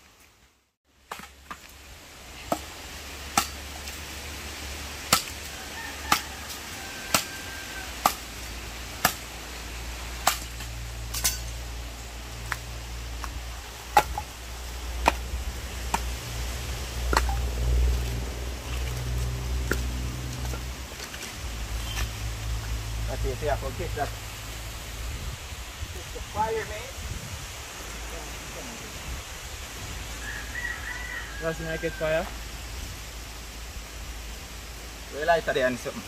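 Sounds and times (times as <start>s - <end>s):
sharp chopping strikes: 3.3s - 3.6s, 5.1s - 5.4s, 7.1s - 7.3s, 8.0s - 8.3s, 9.0s - 9.3s, 10.2s - 11.4s, 13.2s - 14.3s, 15.0s - 15.3s, 15.9s - 16.2s, 17.1s - 17.4s
low rumble: 14.2s - 25.8s.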